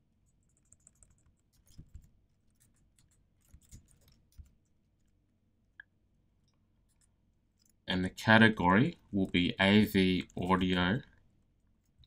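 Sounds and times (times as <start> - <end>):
keystrokes on computer keyboard: 0.2 - 5.2.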